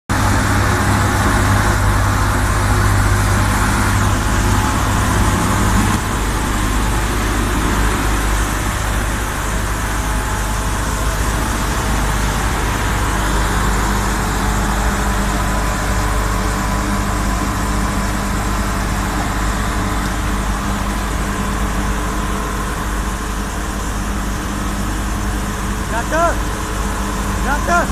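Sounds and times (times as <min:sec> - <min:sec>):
road sweeper engine humming: 0:00.1 - 0:27.9.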